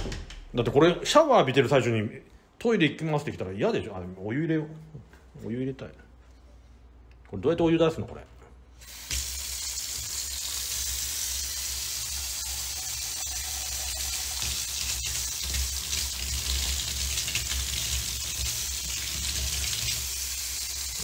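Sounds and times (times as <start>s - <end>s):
water running from tap: 8.8s - 21.0s.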